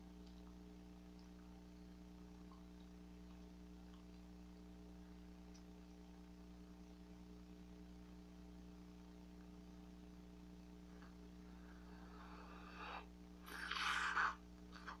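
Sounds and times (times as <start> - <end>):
low electrical hum: 0.0 - 15.0
breathy air blowing: 11.5 - 14.4.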